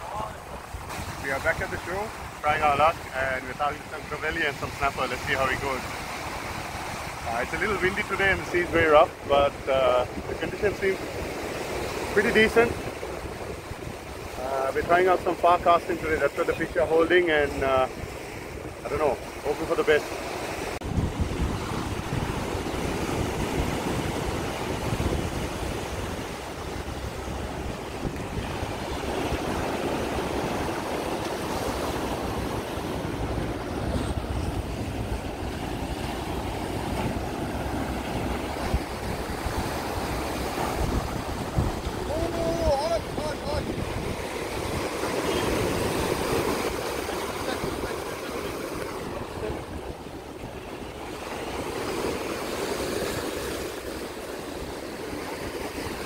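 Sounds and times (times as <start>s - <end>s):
surf breaking over rocks: 0.0s - 56.0s
wind buffeting microphone: 0.0s - 56.0s
wind noise on microphone: 20.8s - 48.0s.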